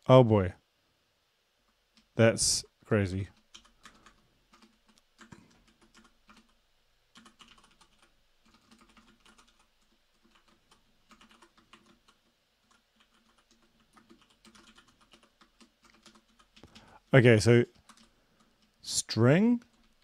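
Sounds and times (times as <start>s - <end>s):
typing on a computer keyboard: 3.3s - 16.9s, 17.7s - 18.8s, 19.6s - 20.0s.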